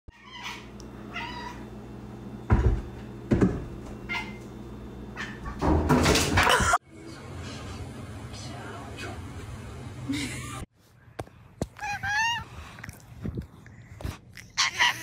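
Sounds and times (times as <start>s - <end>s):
cat meowing: 11.8s - 12.5s.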